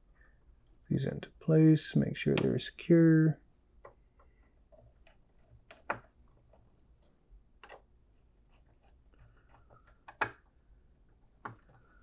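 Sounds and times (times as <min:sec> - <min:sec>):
fingers clicking wires into terminal: 0:10.0 - 0:10.4.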